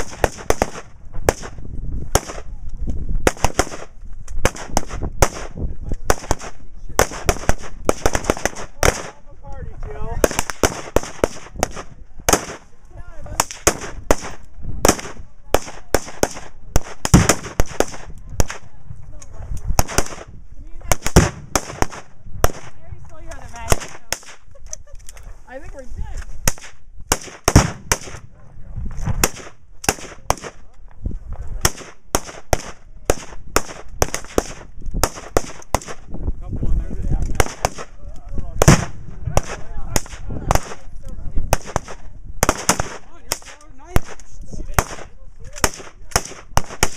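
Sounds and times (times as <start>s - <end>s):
rifles firing rapidly: 0.0s - 2.5s, 3.2s - 9.3s, 10.1s - 18.7s, 19.8s - 22.8s, 23.6s - 24.5s, 26.4s - 28.3s, 29.2s - 30.6s, 31.6s - 36.0s, 37.3s - 38.0s, 38.6s - 40.9s, 41.5s - 46.9s.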